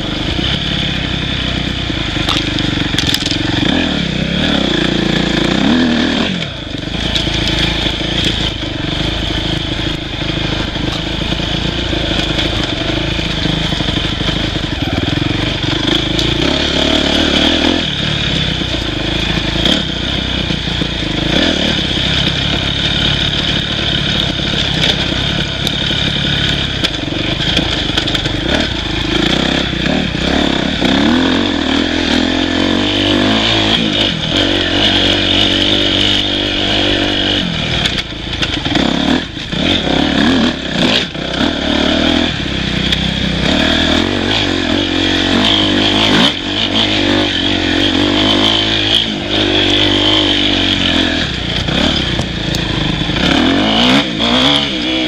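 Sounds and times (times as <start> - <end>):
dirt bike engine revving: 0.0 - 55.0
bike knocks and rattles: 2.1 - 3.6.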